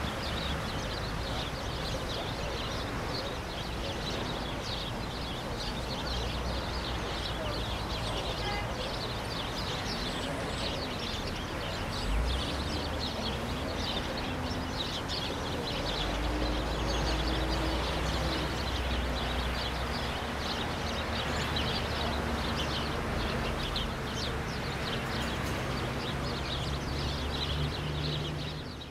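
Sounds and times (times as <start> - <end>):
birds chirping: 0.0 - 28.9
low traffic rumble: 0.0 - 28.9.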